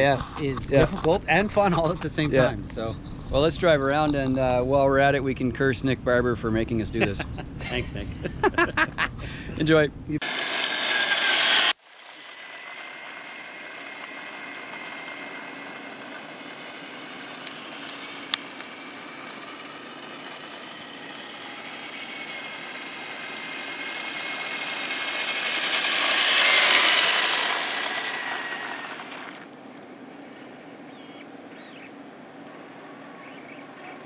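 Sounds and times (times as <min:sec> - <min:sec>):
faint electric motor whine: 0:10.1 - 0:34.0.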